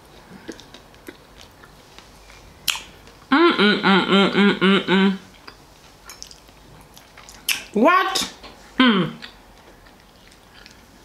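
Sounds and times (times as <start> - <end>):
quiet chewing: 0.0 - 3.3, 5.3 - 11.0
woman humming with mouth full: 3.3 - 5.3, 8.8 - 9.2.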